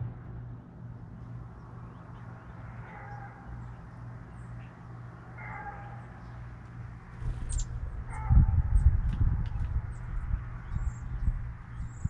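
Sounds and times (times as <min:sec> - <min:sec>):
low gusty rumble: 0:00.0 - 0:02.7, 0:07.0 - 0:12.0
small birds chirping: 0:01.2 - 0:12.0.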